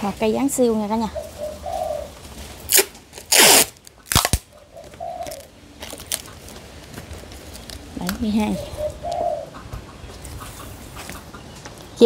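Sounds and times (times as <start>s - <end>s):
faint bird calls: 1.0s - 2.2s, 4.5s - 6.4s, 7.9s - 12.0s.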